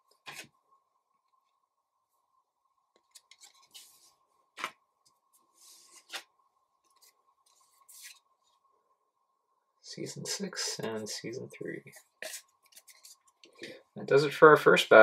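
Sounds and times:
cards sliding and rubbing: 0.2 - 0.5, 3.1 - 4.7, 5.4 - 6.3, 6.9 - 8.3, 11.9 - 13.2.

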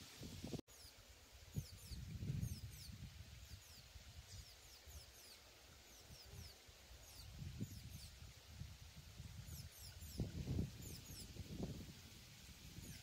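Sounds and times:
songbird singing: 0.7 - 13.0.

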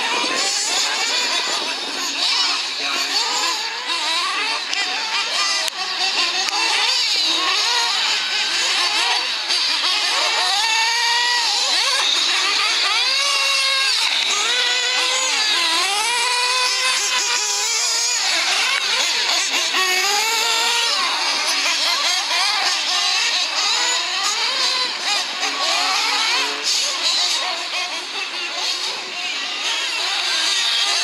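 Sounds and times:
rc buggy engines buzzing: 0.0 - 31.0.

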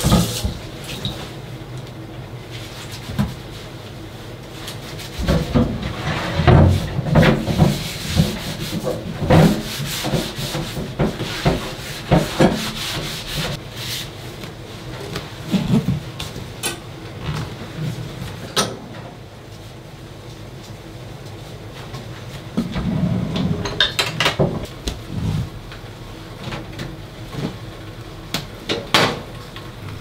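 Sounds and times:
cutting board scrubbing: 4.9 - 14.2.

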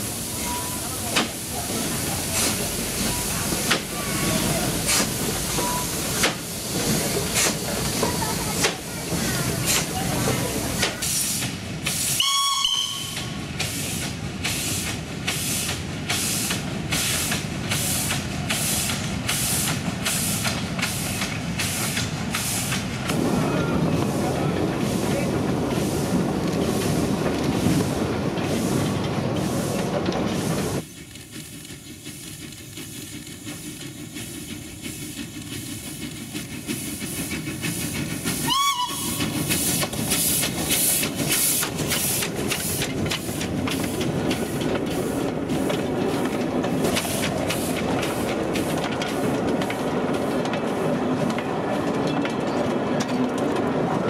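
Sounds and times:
steam locomotive chuffing: 0.0 - 54.0
steam whistle toot: 12.2 - 13.3, 38.4 - 39.2.

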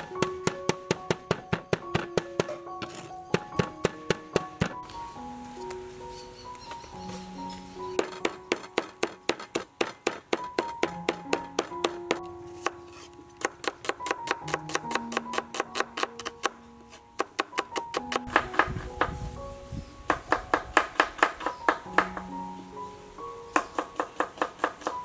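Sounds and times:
soft background music: 0.0 - 25.0
cleaver chopping on wooden board: 0.4 - 4.8, 8.0 - 12.8, 23.6 - 25.0.

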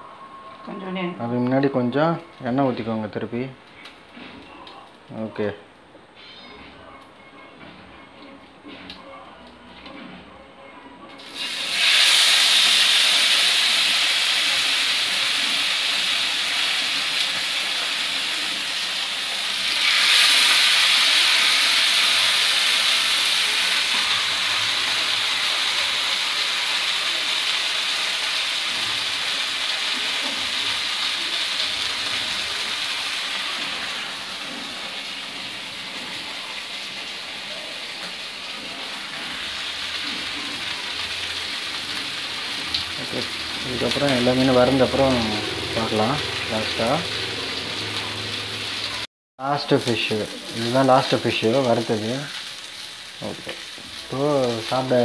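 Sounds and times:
fish sizzling in hot oil: 11.2 - 55.0.

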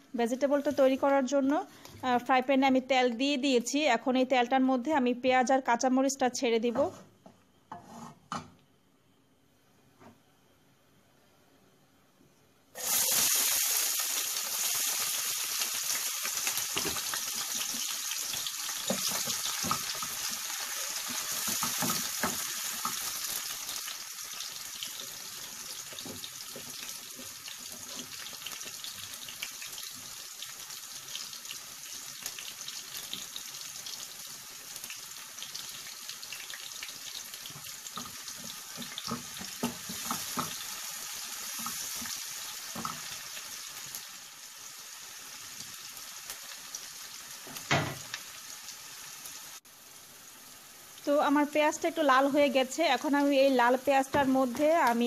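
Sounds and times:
onions sizzling in hot oil: 0.0 - 1.6, 12.8 - 55.0.

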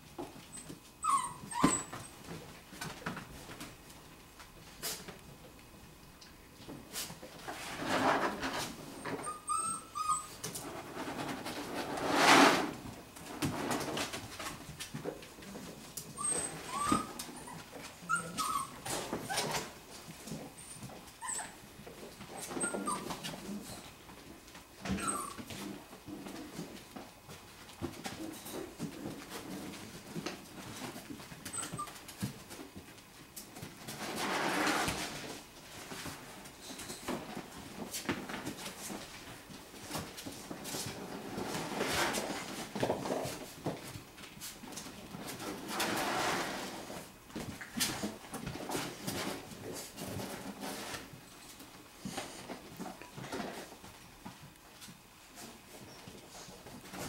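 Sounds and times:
paws scrabbling on plastic toys: 0.0 - 57.0
puppies scuffling and knocking: 0.1 - 5.5, 6.6 - 57.0
puppy whining: 0.4 - 2.4, 8.4 - 11.3, 15.9 - 24.0, 24.8 - 26.4, 28.5 - 32.3
rustling scrape: 6.9 - 14.6, 33.7 - 53.8.

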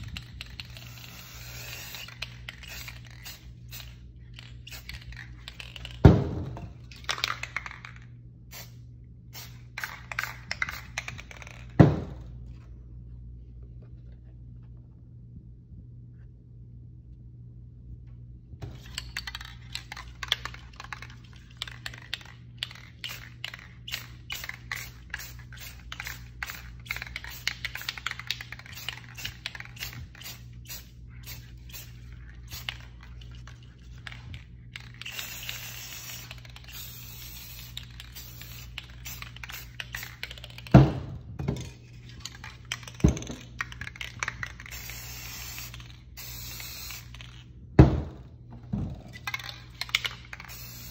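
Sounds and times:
spray paint hissing: 0.0 - 6.0, 18.7 - 34.2, 34.8 - 40.7, 42.2 - 47.4, 49.2 - 50.9
spray can mixing ball rattling: 0.0 - 8.7, 9.4 - 12.2, 18.6 - 50.9.

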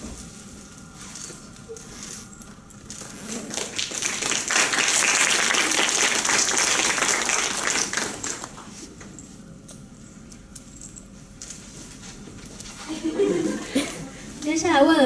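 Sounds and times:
audience applauding: 3.4 - 8.7.

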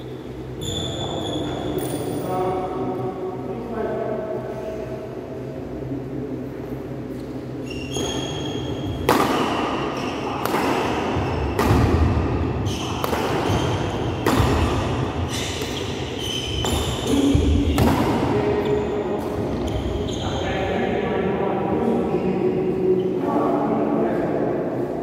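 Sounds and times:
shoes squeaking: 7.1 - 11.8, 12.6 - 17.9, 18.5 - 20.5
racket striking shuttlecock: 9.0 - 18.4.

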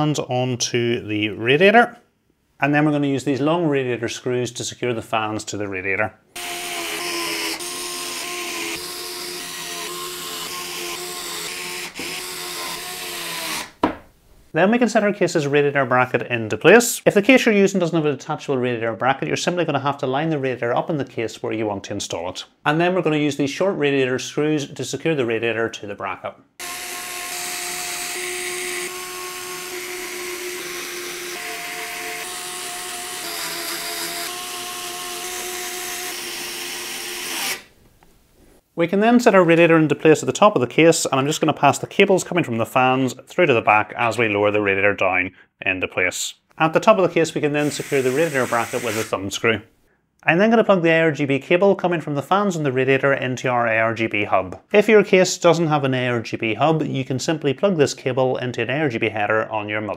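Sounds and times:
electric screwdriver whining: 6.4 - 13.8, 26.6 - 37.7.

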